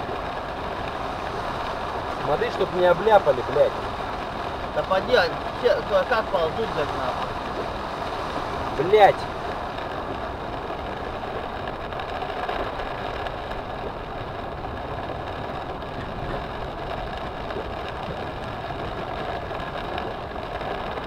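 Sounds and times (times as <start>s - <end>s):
water rushing against car: 0.0s - 21.0s.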